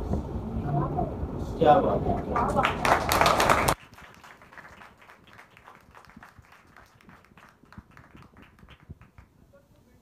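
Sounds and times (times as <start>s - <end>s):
applause: 2.2s - 9.4s
scattered hand claps: 2.4s - 9.3s.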